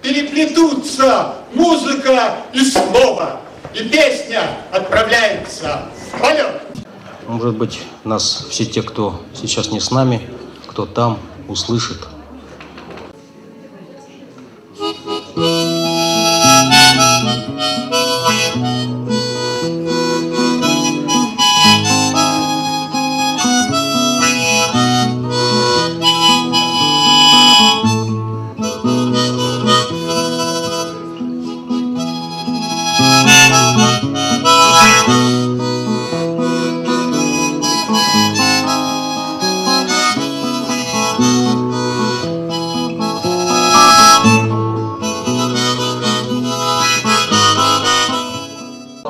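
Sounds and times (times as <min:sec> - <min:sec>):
acoustic guitar: 0:14.8 - 0:49.0
harmonica melody: 0:14.8 - 0:49.0.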